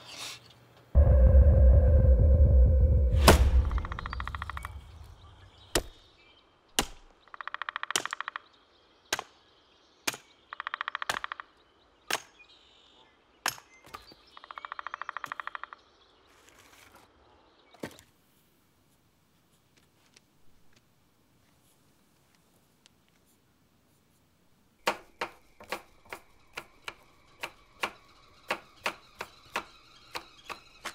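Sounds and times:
rapid buzzing pulses: 1.0s - 5.4s
hatchet chopping wood block: 5.7s - 6.0s, 6.8s - 7.1s, 7.9s - 8.2s, 10.1s - 10.3s, 12.1s - 12.3s, 24.8s - 30.9s.

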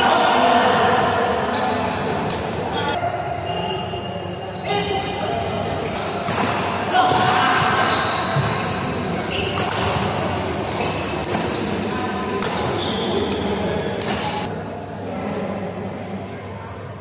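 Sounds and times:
rackets hitting shuttlecock: 6.2s - 14.4s
shoes squeaking on court: 7.6s - 14.5s.

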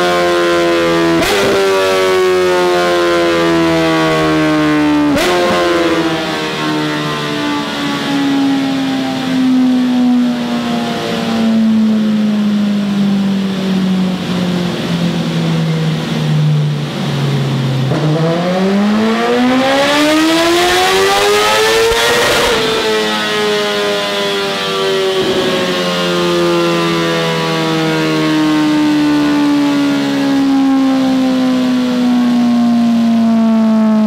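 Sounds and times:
motorcycle engine revving: 0.8s - 9.4s, 10.3s - 30.0s.

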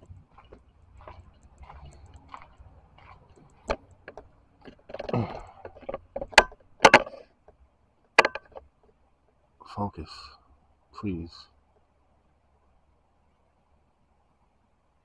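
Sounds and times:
camera handling clicks and knocks: 3.5s - 7.2s, 8.2s - 8.6s.

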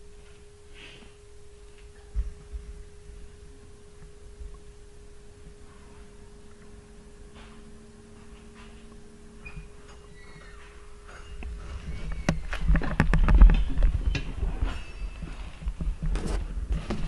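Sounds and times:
lower hum: 0.0s - 17.0s
steady electrical hum: 0.0s - 17.0s
soft low thumps: 2.0s - 9.8s.

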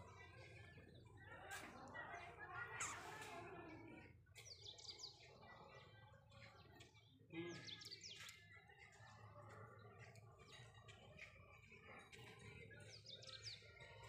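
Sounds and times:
birds chirping: 2.7s - 3.2s.

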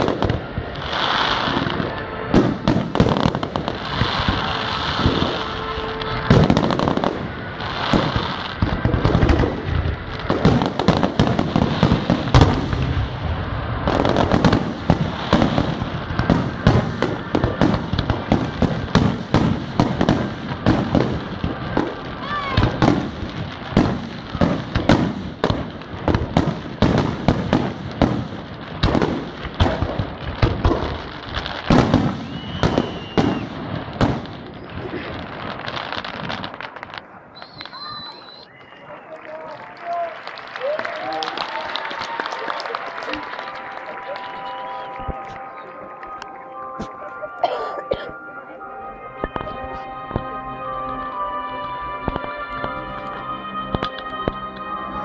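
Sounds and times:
firework shells bursting: 31.6s - 34.7s.

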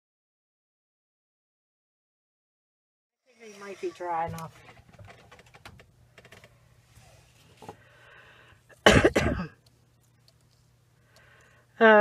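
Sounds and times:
low steady hum: 3.3s - 12.0s
person coughing: 8.7s - 9.6s.

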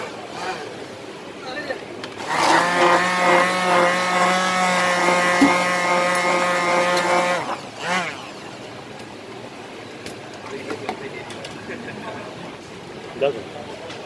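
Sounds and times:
stick blender whirring: 2.1s - 8.4s.

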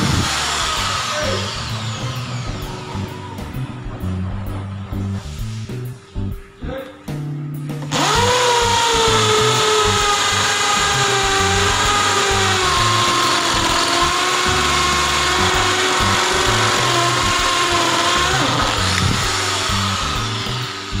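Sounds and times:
impact drill boring into concrete: 0.0s - 2.7s, 7.9s - 21.0s.

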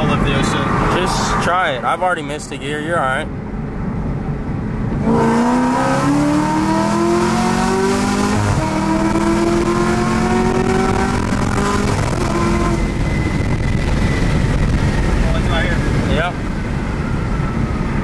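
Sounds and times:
car engine accelerating hard: 4.8s - 16.5s.

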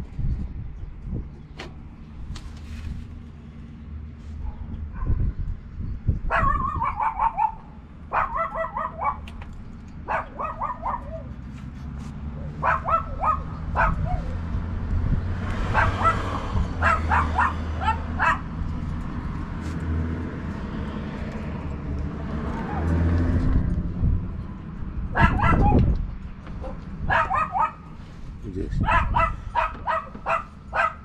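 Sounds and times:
dog barking high yaps: 6.3s - 9.3s, 10.0s - 11.3s, 12.6s - 14.4s, 15.7s - 18.5s, 25.2s - 25.9s, 26.6s - 27.9s, 28.8s - 31.0s.

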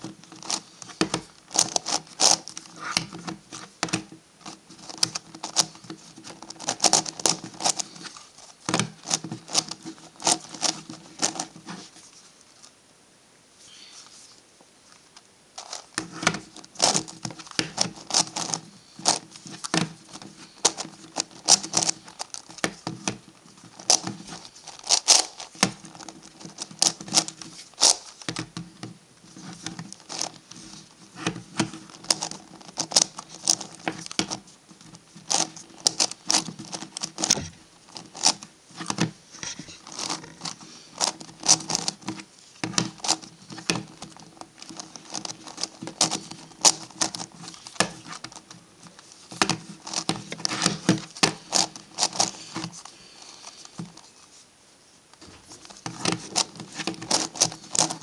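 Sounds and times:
plastic puzzle pieces clicking: 0.4s - 4.1s, 4.8s - 7.9s, 15.6s - 28.5s.

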